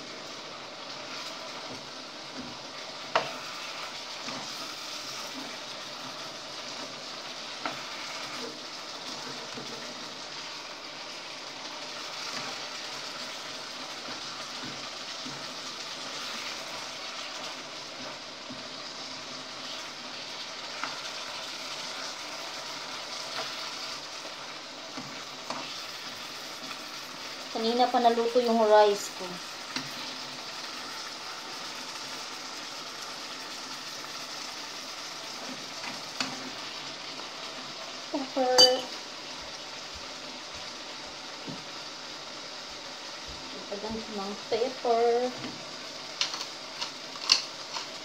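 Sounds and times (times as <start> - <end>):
chicken sizzling in a pan: 0.0 - 48.0
utensil clicking against pan: 46.2 - 48.0.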